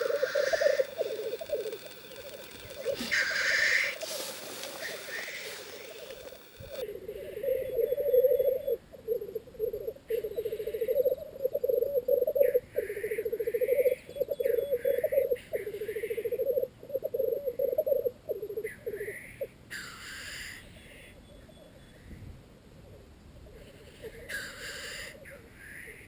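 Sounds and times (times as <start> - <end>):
grouse hissing calls: 0.0 - 18.0, 23.6 - 26.0
grouse bubbling cooing song: 0.0 - 19.2.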